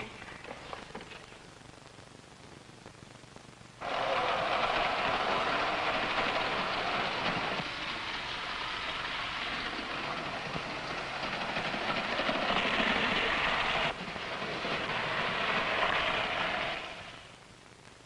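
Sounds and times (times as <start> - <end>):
toy electric train running: 3.8 - 17.3.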